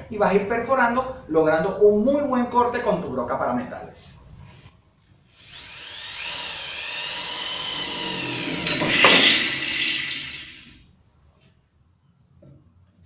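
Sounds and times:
drill drilling into metal: 5.4 - 10.8.

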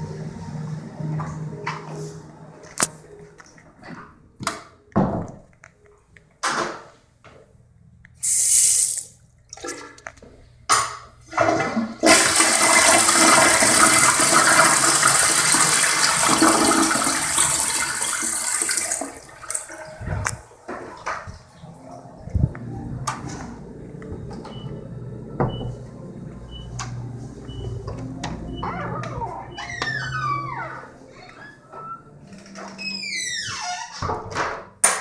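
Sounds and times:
toilet flushing: 11.2 - 22.2.

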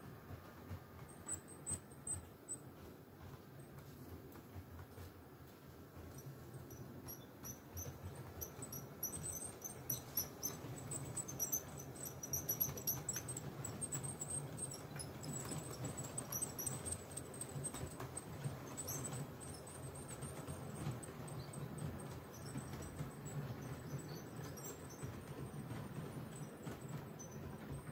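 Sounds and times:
wagon wheels clicking: 0.0 - 27.9
model train rumbling: 4.8 - 27.9
wheels squeaking: 6.0 - 27.9.

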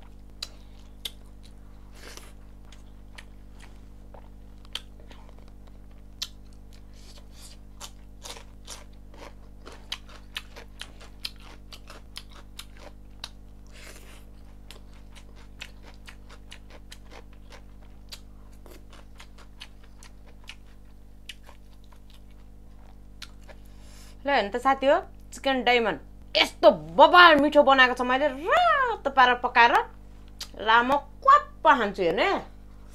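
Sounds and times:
wet mouth chewing: 0.0 - 23.7
steady low hum: 0.0 - 32.9.

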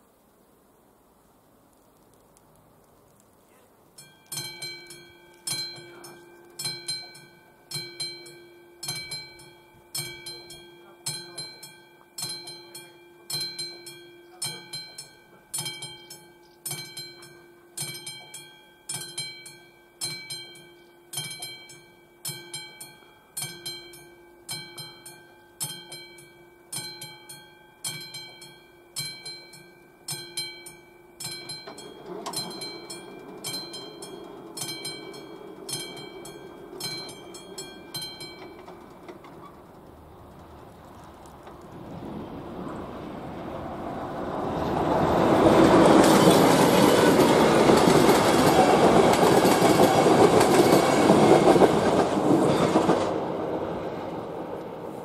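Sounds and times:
level crossing bell ringing: 4.0 - 39.3
rushing noise: 31.7 - 55.0.

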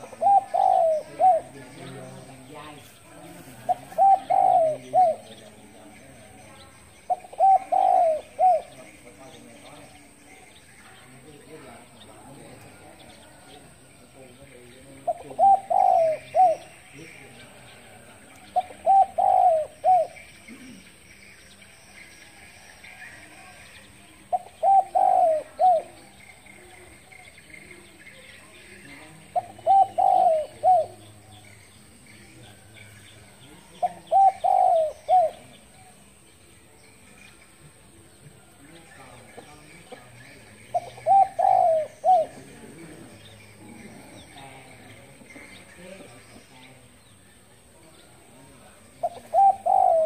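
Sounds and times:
dove cooing: 0.0 - 10.2, 11.8 - 21.0, 24.2 - 36.0, 39.3 - 46.5, 48.8 - 50.0.

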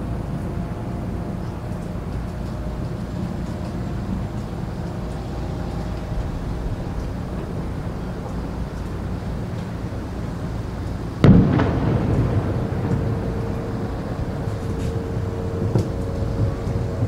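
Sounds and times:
rolling rumble: 0.0 - 17.0
faint firework pops: 11.2 - 13.5
distant firework boom: 11.2 - 16.6.

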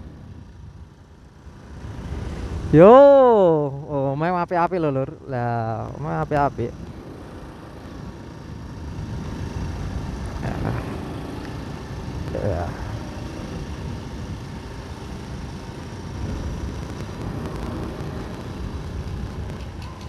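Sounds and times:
motorcycle engine running: 5.7 - 20.0.

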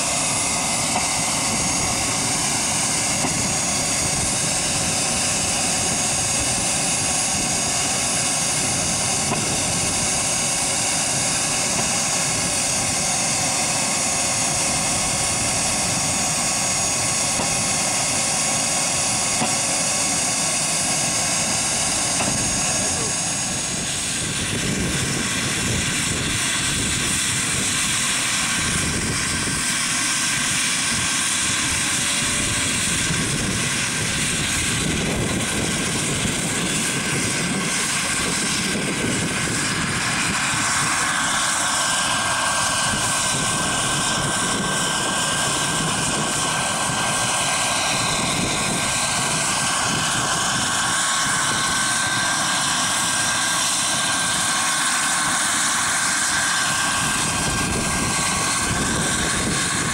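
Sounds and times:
helicopter rotors spinning: 0.0 - 59.9
turbine high whine: 0.0 - 59.9.

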